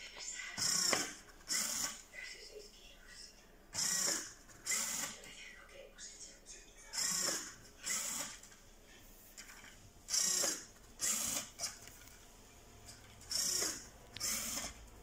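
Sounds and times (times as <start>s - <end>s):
small electric motor whirring: 0.6s - 2.0s, 3.8s - 5.2s, 7.0s - 8.4s, 10.1s - 11.9s, 13.2s - 14.8s.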